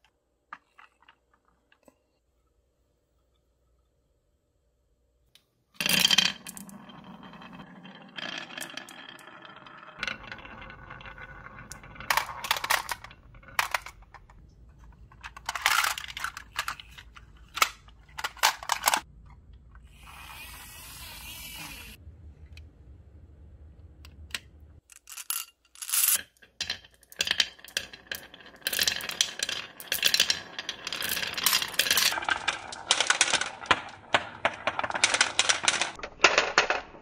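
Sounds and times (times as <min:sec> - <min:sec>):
marbles clacking together: 0:05.8 - 0:14.4, 0:24.9 - 0:37.0
marbles clattering onto wood: 0:05.8 - 0:14.4, 0:24.9 - 0:37.0
marbles rolling on track: 0:05.8 - 0:14.4, 0:25.0 - 0:36.9.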